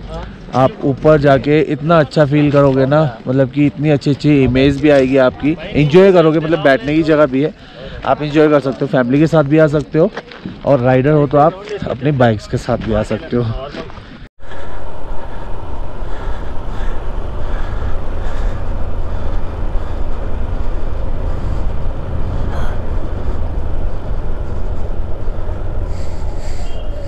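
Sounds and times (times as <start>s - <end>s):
motorcycle engine and road rumble: 14.4s - 27.0s.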